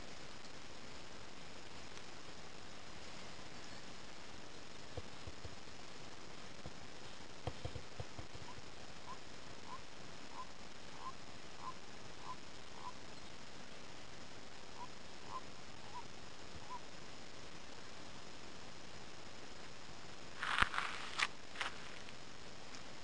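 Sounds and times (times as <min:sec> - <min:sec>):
steady hiss: 0:00.0 - 0:23.0
distant animal calling: 0:08.4 - 0:13.0, 0:14.8 - 0:16.8.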